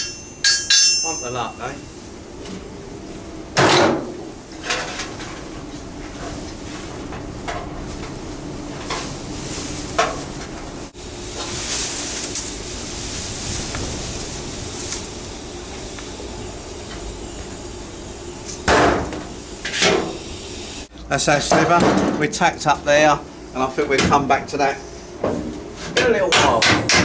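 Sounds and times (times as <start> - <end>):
welder crackling sizzle: 4.4 - 20.9.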